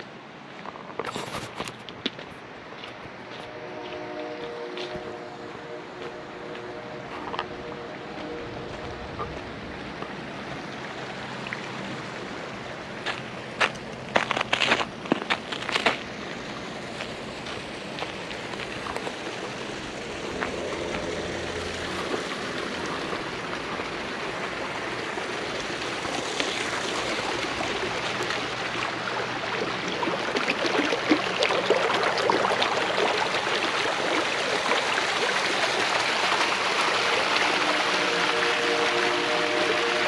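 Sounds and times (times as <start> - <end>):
creek splashing over stones: 1.0 - 40.0.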